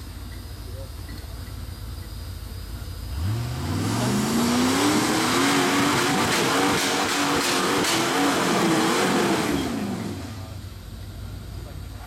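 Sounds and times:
engine rumbling and revving: 0:02.5 - 0:12.0.

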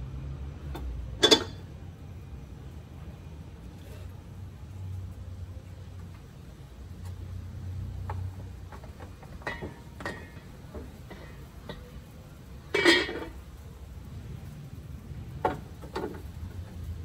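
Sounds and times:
utensils clattering: 0:01.2 - 0:01.6, 0:12.7 - 0:13.4
utensils clinking and knocking: 0:01.2 - 0:01.6.

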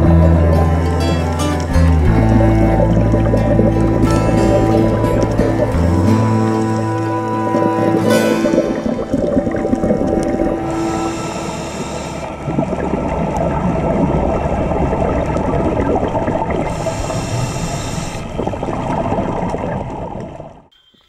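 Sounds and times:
scuba regulator bubbles rumbling: 0:00.0 - 0:20.7
hissing inhalations: 0:10.5 - 0:12.4, 0:16.7 - 0:18.3.

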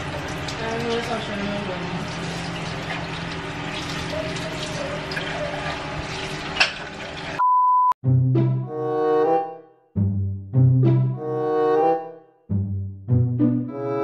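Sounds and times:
chicken frying in hot oil: 0:00.0 - 0:07.4
music: 0:08.0 - 0:14.0.

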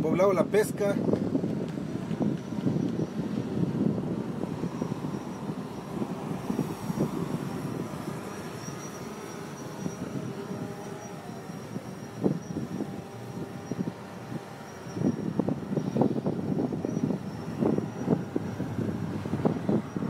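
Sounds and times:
vehicle engines rumbling: 0:00.0 - 0:20.0.

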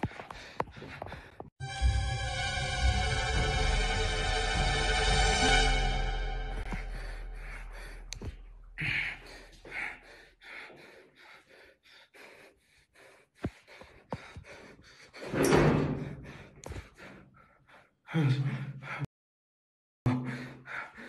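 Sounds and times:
eerie background music: 0:01.6 - 0:09.6.

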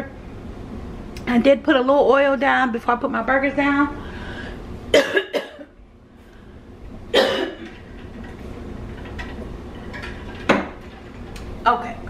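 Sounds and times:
woman coughing: 0:04.9 - 0:05.8, 0:07.1 - 0:07.7.

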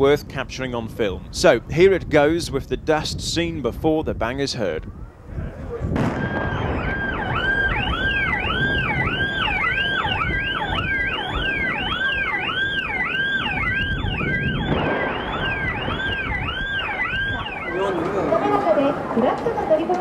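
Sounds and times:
low rumble of collapsing tower: 0:05.8 - 0:12.2, 0:13.4 - 0:17.6
electronic alarm wailing: 0:06.2 - 0:18.0.

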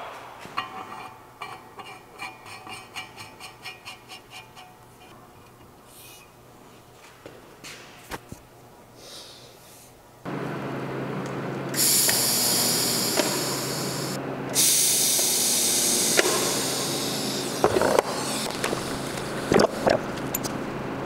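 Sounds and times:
welding machine hum: 0:10.3 - 0:21.0
welding arc hissing: 0:11.8 - 0:19.8.

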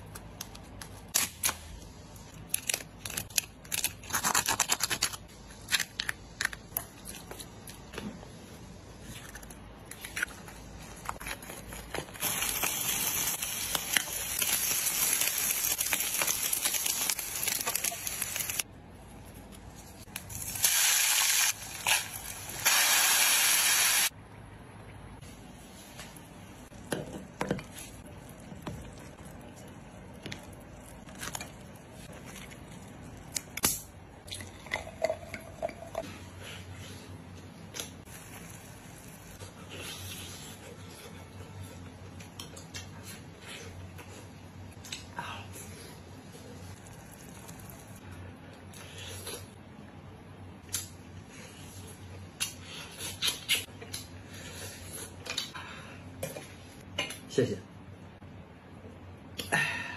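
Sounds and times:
hissing sizzle: 0:12.2 - 0:18.6, 0:20.1 - 0:24.1.

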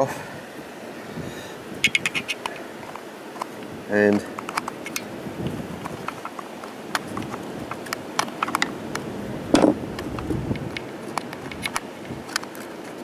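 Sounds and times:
screwdriver tapping plastic housing: 0:01.8 - 0:02.6, 0:05.8 - 0:09.1, 0:10.0 - 0:12.6.

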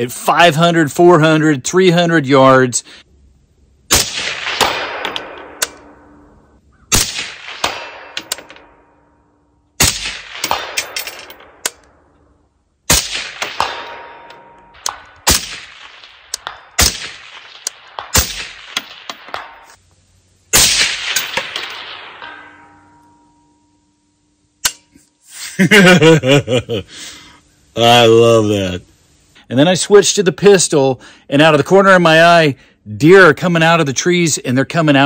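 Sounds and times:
rifle shots echoing: 0:03.9 - 0:19.8, 0:20.5 - 0:23.2
faint sharp cracks: 0:04.0 - 0:06.1, 0:12.9 - 0:20.0.

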